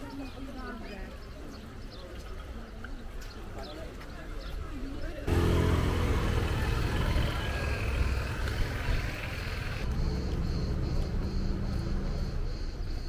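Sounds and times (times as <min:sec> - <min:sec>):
street noise rumbling: 0:04.0 - 0:13.0
motor scooter passing: 0:05.3 - 0:11.8.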